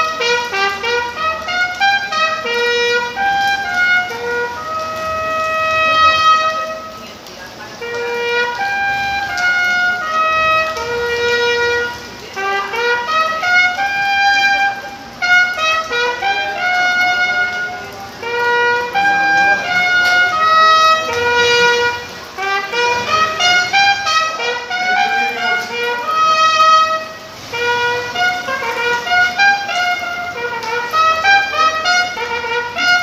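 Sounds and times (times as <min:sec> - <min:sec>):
solo bugle melody: 0:00.0 - 0:33.0.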